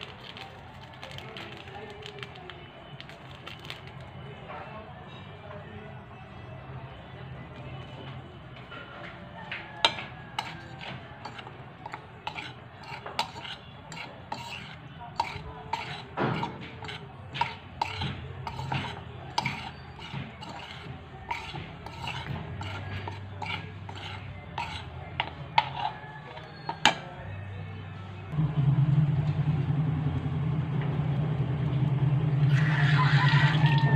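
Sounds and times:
forks stirring flour in bowl: 8.8s - 27.1s.

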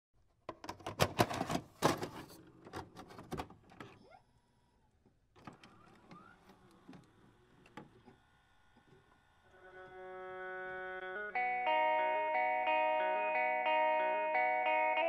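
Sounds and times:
cassette mechanism clicks and clunks: 0.5s - 4.0s.

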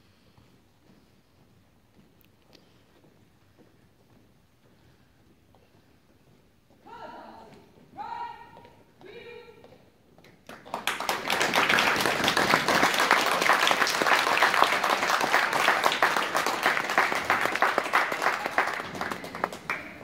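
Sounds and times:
audience applauding: 10.4s - 20.0s.

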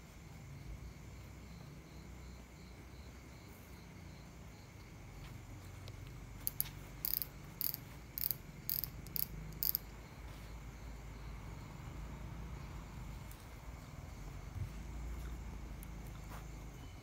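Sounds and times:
cricket trill: 0.0s - 17.0s
sharp high insect chirps: 6.0s - 11.3s.

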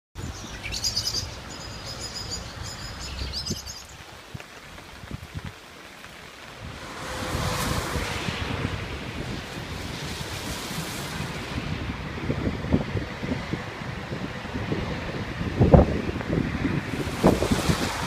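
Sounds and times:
wind on microphone: 0.2s - 5.6s, 6.4s - 18.0s
rain: 0.2s - 18.0s.

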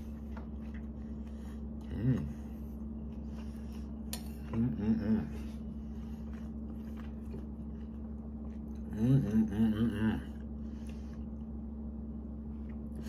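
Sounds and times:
steady low room hum: 0.0s - 13.0s
man humming while eating: 1.7s - 2.9s, 4.1s - 6.0s.

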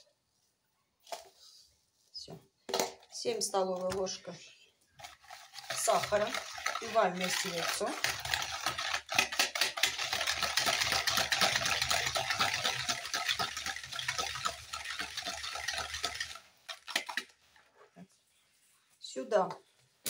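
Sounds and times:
whisk rattling against bowl: 5.0s - 17.6s
whisk tapping on bowl: 5.6s - 17.3s.

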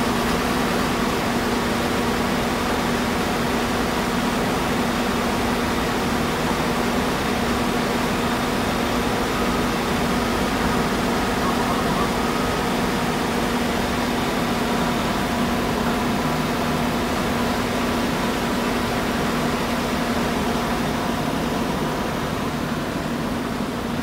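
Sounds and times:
diesel engine running: 6.7s - 24.0s.

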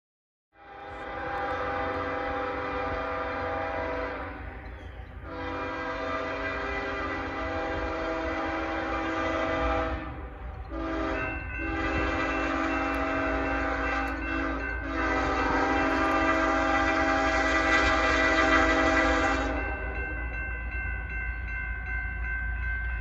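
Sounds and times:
low rumble of train: 0.5s - 23.0s
locomotive air horn blasts: 0.6s - 4.6s, 5.2s - 20.0s.

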